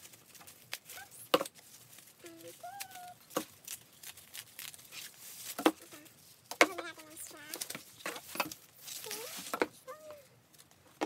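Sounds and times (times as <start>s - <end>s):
sharp crackles: 0.0s - 6.1s
packing material crinkling: 0.0s - 10.9s
person humming: 2.2s - 3.2s.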